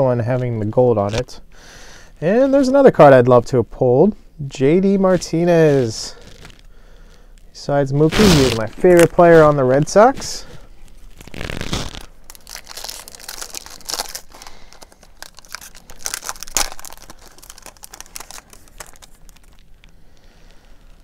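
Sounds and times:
wrapper crinkling and tearing: 5.1s - 6.7s, 8.0s - 21.0s.

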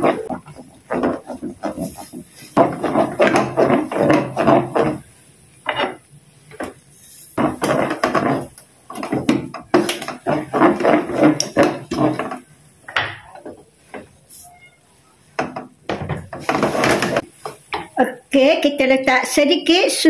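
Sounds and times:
spatula scraping paste in wok: 0.0s - 5.1s, 5.7s - 12.5s, 16.4s - 17.6s.

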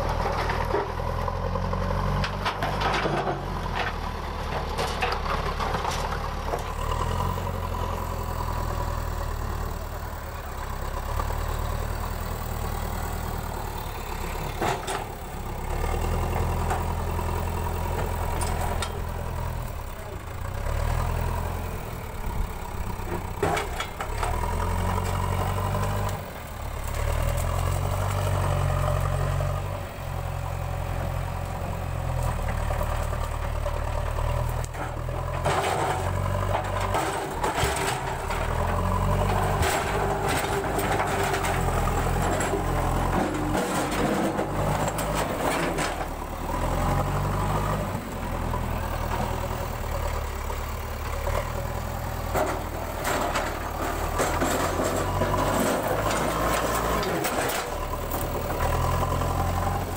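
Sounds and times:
diesel engine revving: 0.0s - 59.9s
bucket and stones clattering: 52.4s - 57.7s.

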